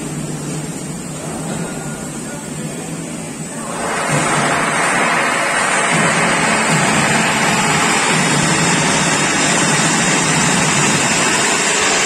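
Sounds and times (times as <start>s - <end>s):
machinery hum and hiss: 0.0s - 12.0s.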